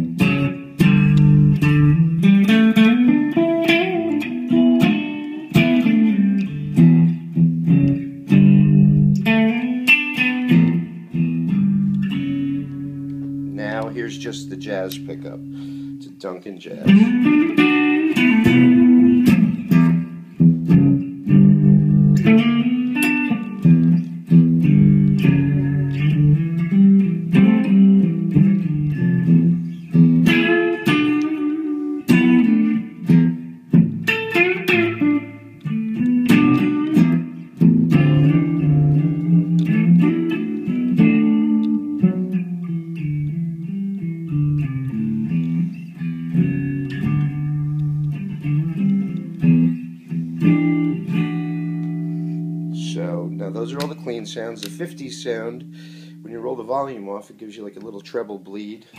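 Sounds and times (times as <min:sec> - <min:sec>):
clean electric guitar playing: 0:00.0 - 0:58.9.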